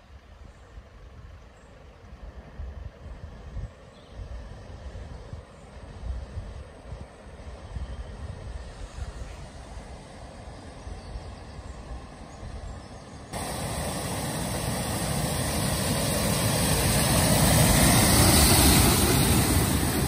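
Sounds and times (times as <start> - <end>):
truck engine running: 13.4 - 20.0
wheels churning water spray: 13.4 - 20.0.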